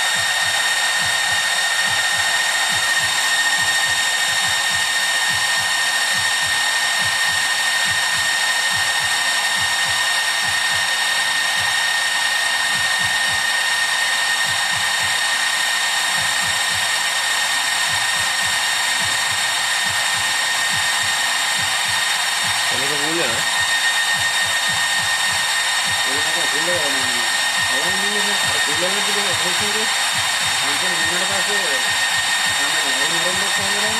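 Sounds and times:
cooling fans hissing and whining: 0:00.0 - 0:33.9.

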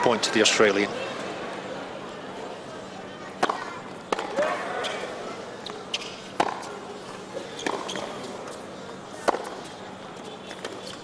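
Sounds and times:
quiet arena crowd: 0:00.0 - 0:11.0
tennis ball struck by racquets: 0:03.4 - 0:04.5, 0:05.9 - 0:06.7, 0:09.2 - 0:09.7.

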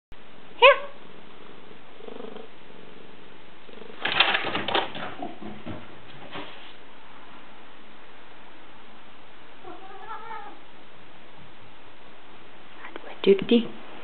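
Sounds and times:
clattering taps and scuffles: 0:04.1 - 0:06.7
cat meowing softly: 0:09.6 - 0:10.7.

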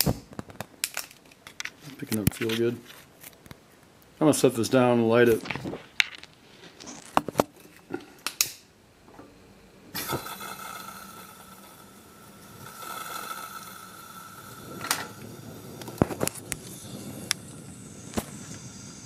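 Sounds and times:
gas lantern hissing: 0:09.2 - 0:19.0.

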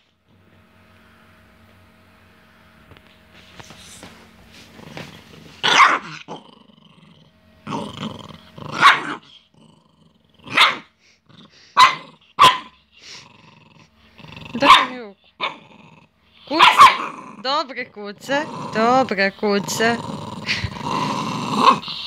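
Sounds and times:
small dog growling: 0:04.6 - 0:22.0
small dog barking: 0:05.6 - 0:06.2, 0:08.7 - 0:09.2, 0:10.4 - 0:10.9, 0:11.8 - 0:12.8, 0:14.6 - 0:15.6, 0:16.5 - 0:17.2.

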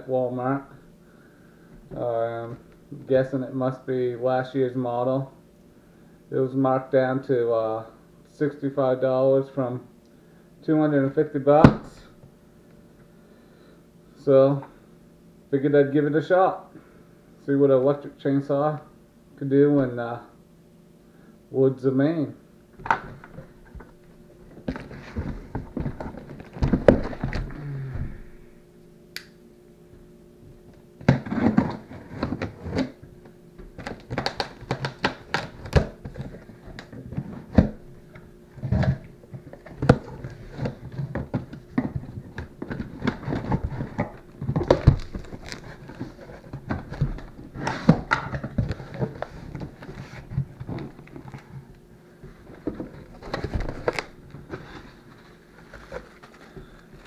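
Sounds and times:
cardboard scraping and rustling: 0:22.8 - 0:28.3, 0:31.0 - 0:33.0, 0:33.7 - 0:57.0.

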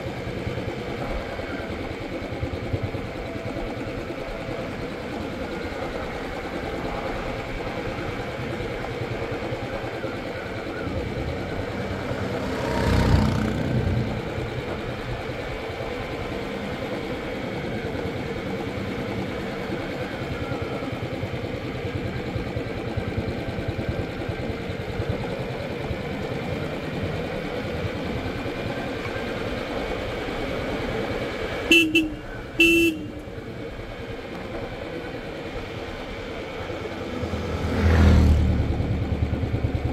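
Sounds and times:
motorcycle engine running: 0:00.0 - 0:39.9
road and wind noise: 0:00.0 - 0:39.9
horn beeps: 0:31.7 - 0:33.2.

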